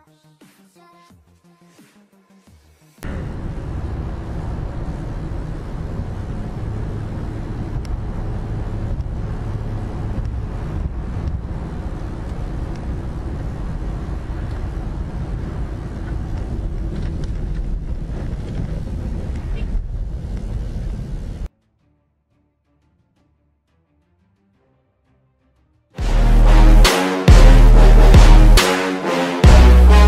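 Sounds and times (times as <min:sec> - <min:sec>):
car driving on highway: 0:03.0 - 0:21.5.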